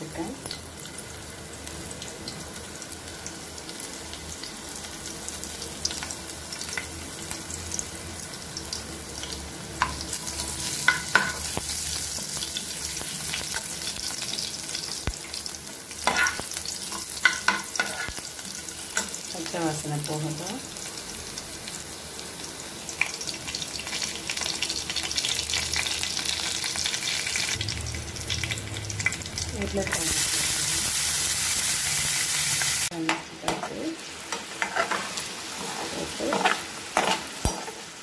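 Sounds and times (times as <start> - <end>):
garlic sizzling in hot oil: 0.0 - 38.0
metal spoon scraping pan: 33.5 - 37.8.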